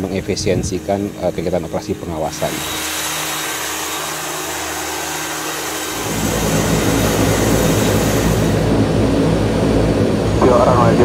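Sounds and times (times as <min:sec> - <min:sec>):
aircraft engine whine: 0:00.0 - 0:11.0
deep engine drone: 0:00.0 - 0:11.0.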